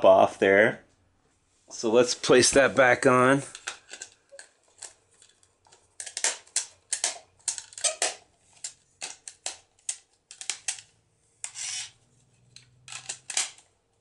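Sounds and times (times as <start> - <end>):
short scraping rasp: 11.4 - 12.0.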